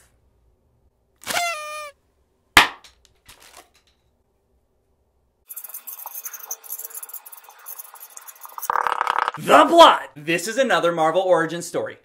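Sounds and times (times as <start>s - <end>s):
paper party blower tooting: 1.2s - 2.0s
marker scratching on paper: 5.5s - 9.1s.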